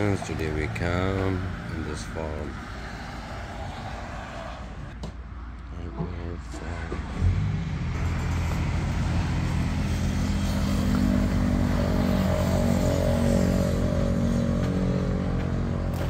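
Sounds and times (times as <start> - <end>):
vehicle engine running: 6.6 - 16.0.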